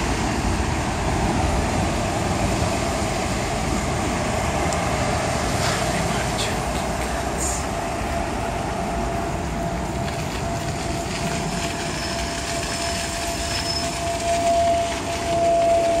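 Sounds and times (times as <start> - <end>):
bicycle tyres rolling on pavement: 0.0 - 16.0
wind noise: 0.0 - 16.0
thin steady whine: 4.6 - 16.0.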